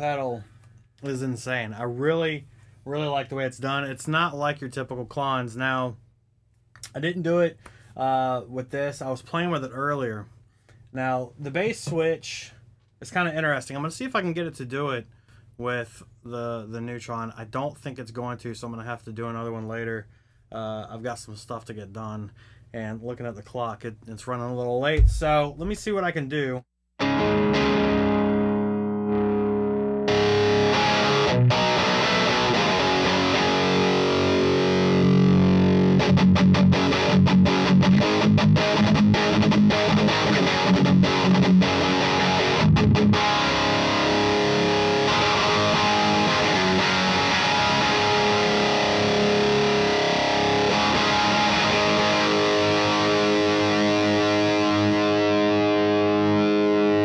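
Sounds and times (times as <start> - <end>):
overdriven electric guitar chords: 27.0 - 57.0.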